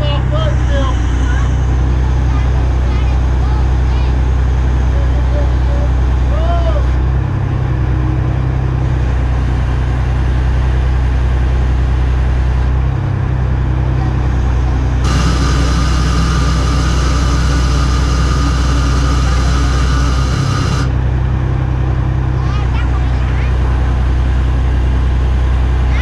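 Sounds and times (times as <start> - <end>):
high whine: 0.0 - 6.3, 14.0 - 21.8
diesel crane engine running: 0.0 - 26.0.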